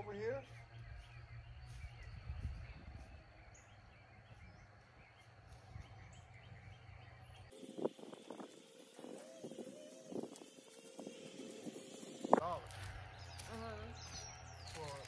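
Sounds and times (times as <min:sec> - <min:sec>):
faint bird chirps: 0:00.0 - 0:07.5.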